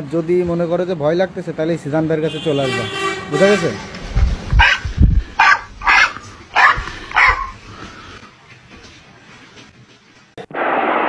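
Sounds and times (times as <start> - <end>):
dog barking: 4.6 - 7.6
loud rushing noise: 10.4 - 11.0.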